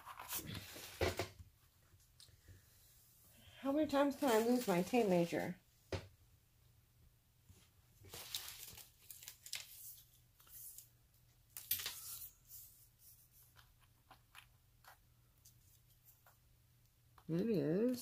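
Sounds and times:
rustling and crinkling handling: 3.8 - 5.6, 7.5 - 16.4.

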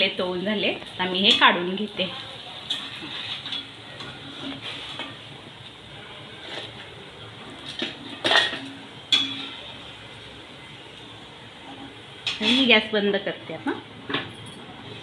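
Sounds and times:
oil sizzling: 0.0 - 15.0
steel spatula scraping and clinking: 2.6 - 5.2, 7.7 - 9.9, 12.2 - 12.7.

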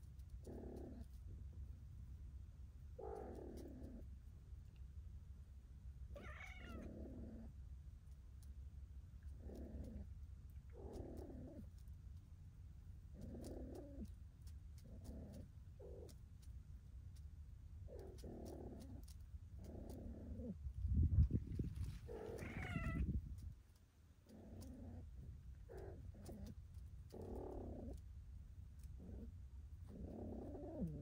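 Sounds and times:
cat yowling: 6.2 - 7.0, 22.1 - 23.1.

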